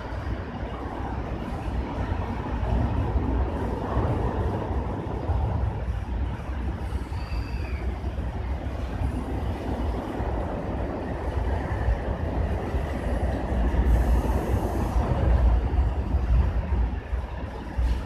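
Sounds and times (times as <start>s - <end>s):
steady low rumble: 0.0s - 7.1s, 7.9s - 18.0s.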